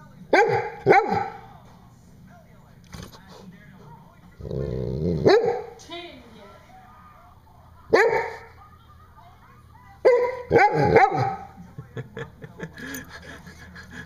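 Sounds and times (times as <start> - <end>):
dog barking: 0.3 - 1.4, 5.2 - 5.8, 7.9 - 8.5, 10.0 - 11.6.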